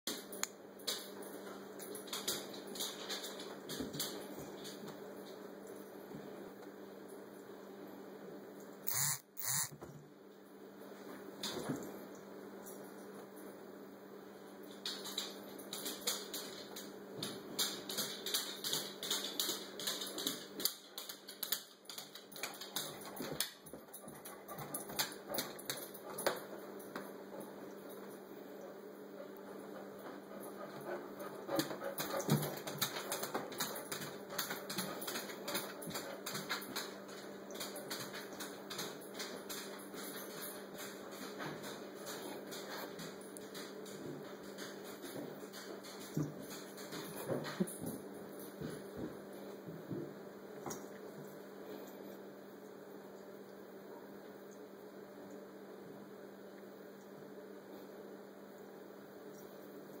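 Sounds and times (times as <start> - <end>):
faint steady hum: 0.1 - 60.0
irregular clicking and tapping: 14.8 - 27.1, 30.0 - 51.3.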